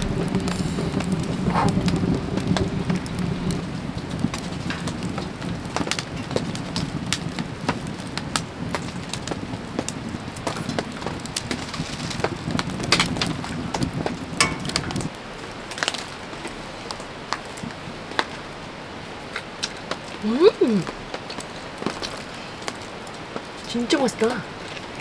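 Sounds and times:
low rumble: 0.0 - 15.2
wood fire crackling: 0.0 - 25.0.

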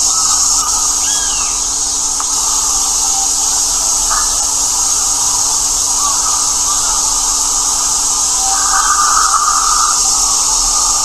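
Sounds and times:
high-pitched hiss: 0.0 - 11.0
thin bird calls: 3.9 - 11.0.

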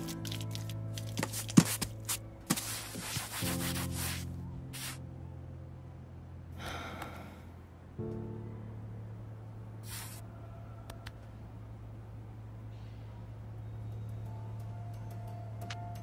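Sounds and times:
soft sustained music: 0.0 - 16.0
brush scrubbing wood: 0.3 - 5.0.

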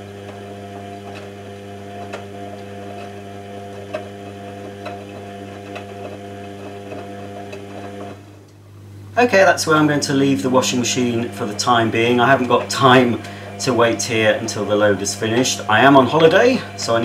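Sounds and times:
steady machine hum: 0.0 - 17.0
washing machine drum turning: 9.7 - 17.0.

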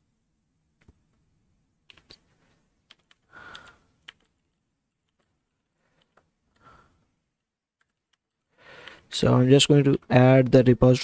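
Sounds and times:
keyboard keystrokes: 1.9 - 2.2, 2.9 - 5.4, 7.8 - 9.0.

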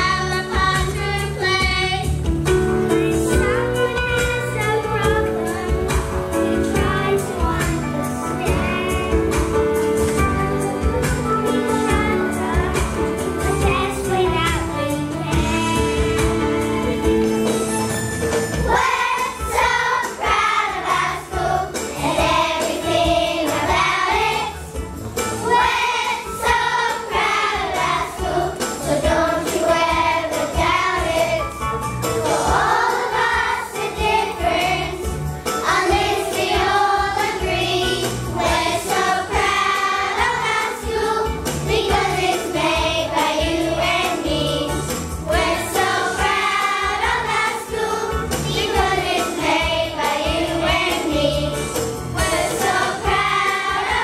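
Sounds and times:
children's choir singing: 0.0 - 2.2, 11.6 - 17.8, 18.6 - 31.6, 32.2 - 54.0
instrumental accompaniment: 0.0 - 54.0
jingling percussion beat: 0.0 - 54.0.

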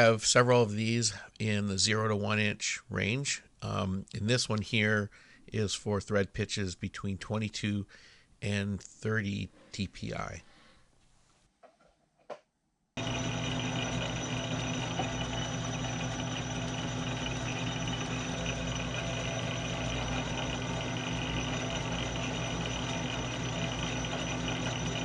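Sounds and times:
metal lathe humming and whining: 13.0 - 25.0.

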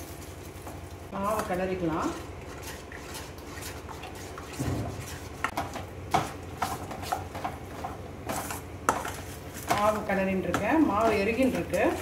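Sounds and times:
spatula scraping dough in pan: 1.9 - 9.9.

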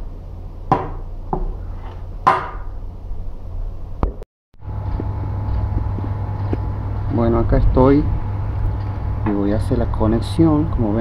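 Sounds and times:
low steady hum: 0.0 - 11.0
metal capacitor knocking on wood: 0.7 - 1.5, 2.2 - 2.7.

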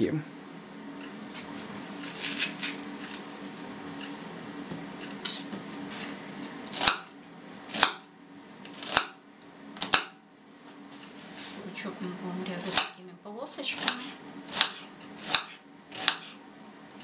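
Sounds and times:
knife chopping onion on board: 6.7 - 7.1, 7.7 - 8.1, 8.7 - 9.2, 9.8 - 10.2, 12.6 - 13.0, 13.7 - 16.4.

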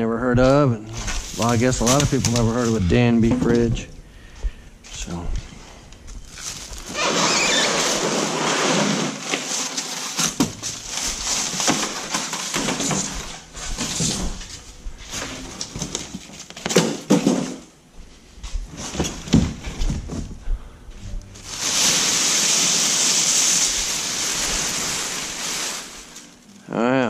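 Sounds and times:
packing material rustling: 1.0 - 2.8, 6.2 - 16.7, 21.4 - 26.6.

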